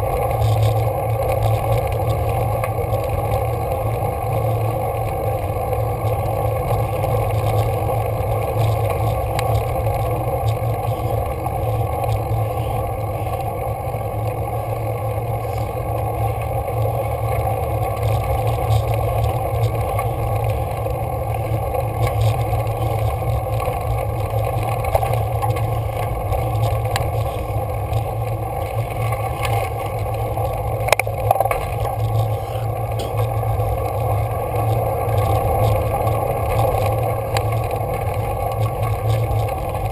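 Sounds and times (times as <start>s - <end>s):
bike rumbling on gravel road: 0.0s - 39.9s.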